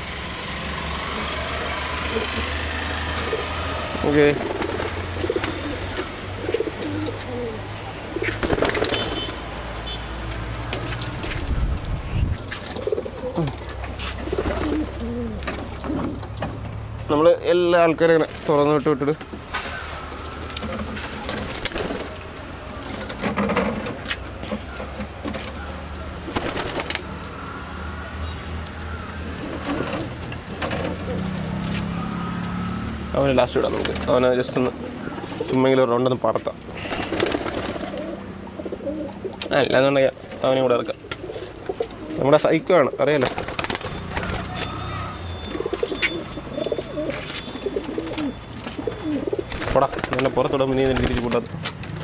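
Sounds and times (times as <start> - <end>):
pigeons cooing: 0.7 - 9.3, 12.0 - 16.7, 19.2 - 32.8, 33.5 - 35.8, 36.6 - 51.5
rustles: 10.2 - 17.0, 18.2 - 28.0
sharp knocks and rustles: 22.9 - 25.6.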